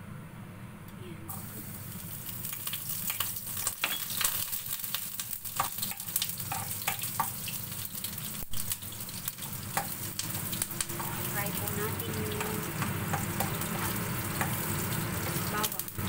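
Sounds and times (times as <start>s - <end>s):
garlic sizzling in hot oil: 1.3s - 16.0s
metal spoon scraping a pan: 5.6s - 7.6s, 8.6s - 15.5s.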